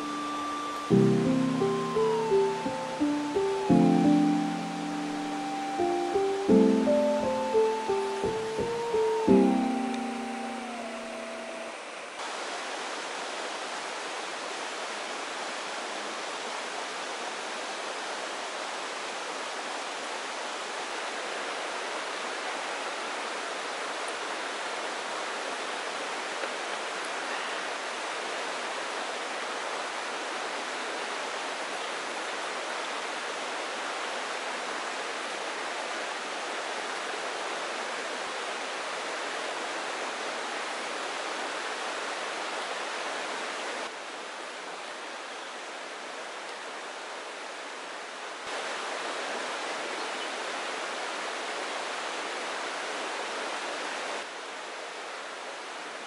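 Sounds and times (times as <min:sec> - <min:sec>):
steady rushing hiss: 0:00.0 - 0:11.6.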